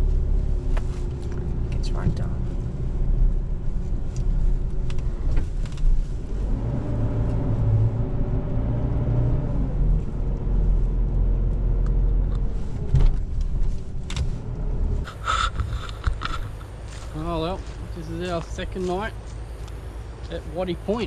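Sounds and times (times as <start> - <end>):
vehicle engine and road rumble: 0.0 - 21.0.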